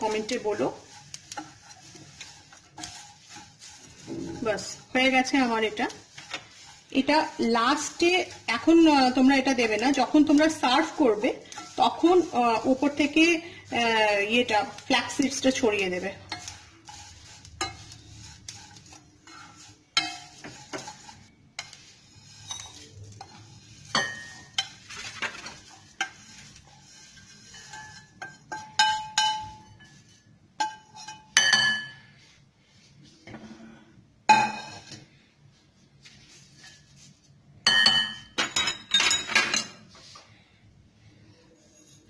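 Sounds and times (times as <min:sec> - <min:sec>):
spoon scraping a steel pan: 0:00.0 - 0:32.1, 0:34.3 - 0:35.1, 0:41.4 - 0:42.0.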